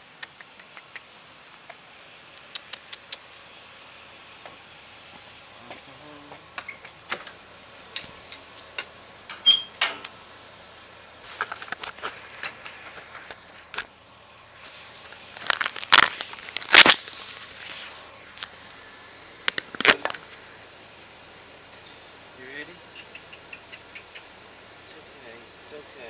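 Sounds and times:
high insect drone: 0.0s - 26.0s
sharp metallic clink: 9.3s - 10.1s
crackling: 11.2s - 20.7s.

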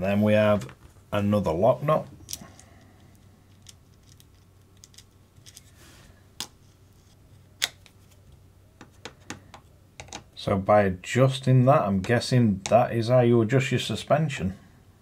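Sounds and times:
small parts clicking and tapping: 2.2s - 5.7s, 8.8s - 10.3s.

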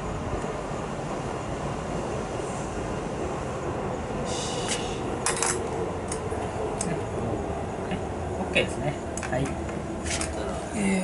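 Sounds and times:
steady low rumble: 0.0s - 11.0s
light metallic clicks and clinks: 5.2s - 6.2s.

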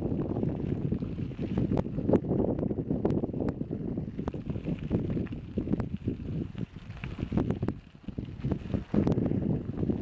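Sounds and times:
wind buffeting microphone: 0.0s - 10.0s
bike rattling clicks: 0.1s - 9.9s.

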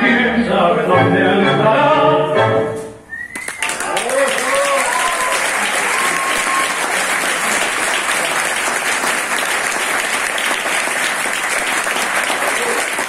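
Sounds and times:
audience applauding: 3.2s - 13.0s.

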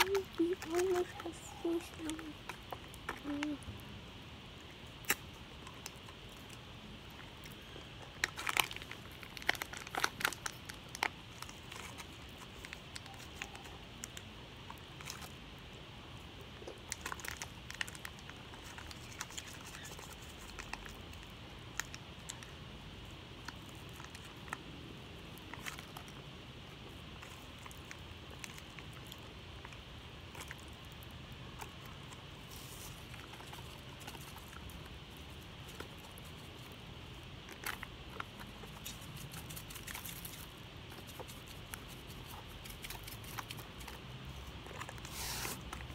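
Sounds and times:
plastic packet crinkling: 0.0s - 3.6s, 8.1s - 14.2s, 16.8s - 22.5s.

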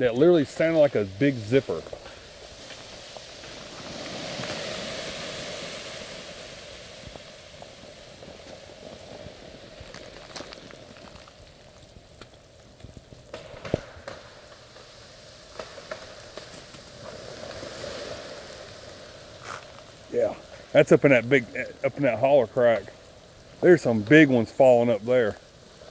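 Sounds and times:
freezing rain pattering: 0.0s - 25.9s
sharp crack: 0.2s - 23.0s.

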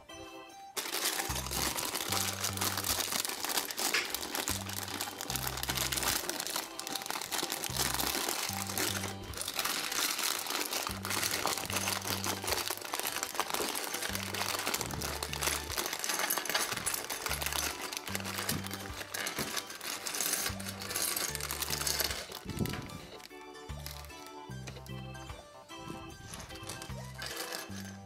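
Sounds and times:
plastic bag crinkling: 0.8s - 24.9s, 25.8s - 28.0s
background music with bass line: 4.0s - 9.8s, 10.9s - 16.0s, 20.2s - 28.0s.

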